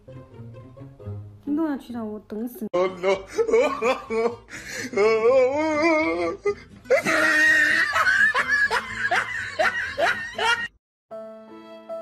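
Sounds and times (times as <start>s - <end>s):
violin music: 0.0s - 1.4s
person laughing hard: 2.8s - 10.8s.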